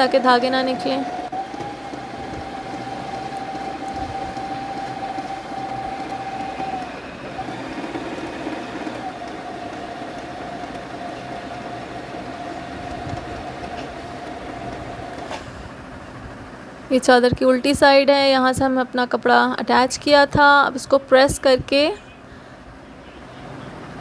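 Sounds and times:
sewing machine whining: 0.0s - 15.8s.

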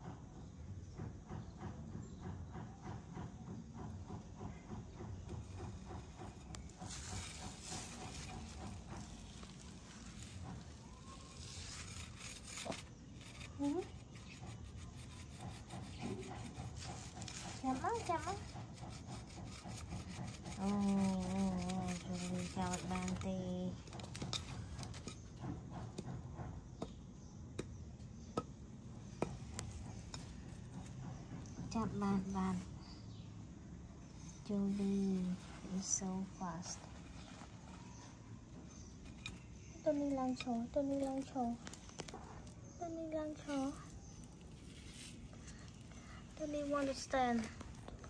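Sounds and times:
kitten scratching and gnawing stick: 4.9s - 26.2s, 34.4s - 48.0s.

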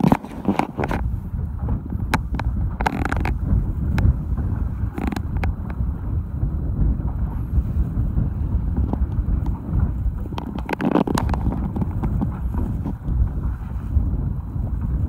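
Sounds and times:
boat engine rumble: 0.0s - 15.0s
wind buffeting microphone: 0.0s - 15.0s
clicks and knocks: 10.2s - 13.0s.

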